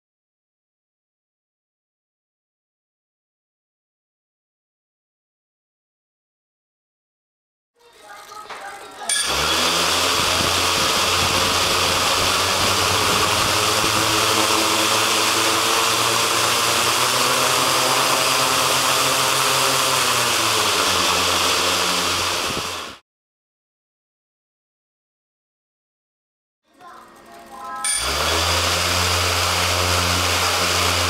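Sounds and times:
drone motors humming and whirring: 9.1 - 23.0, 26.8 - 31.0.

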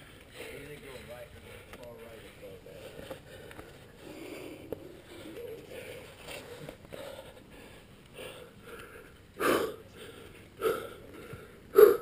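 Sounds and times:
person breathing hard: 1.3 - 12.0
sharp exhalations: 2.8 - 12.0.

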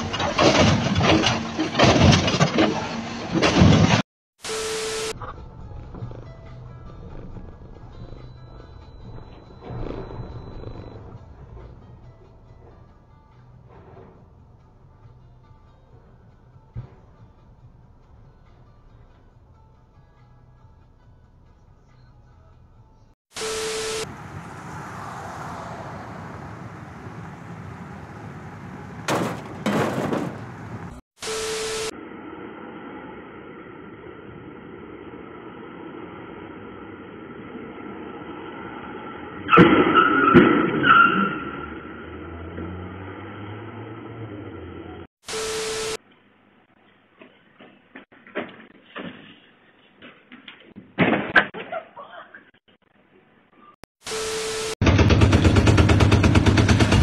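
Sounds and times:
car collision crash: 0.0 - 4.0, 29.0 - 30.9, 39.5 - 40.9
road and engine noise: 0.0 - 48.1, 53.9 - 57.0
door rattling bang: 29.0 - 30.9.

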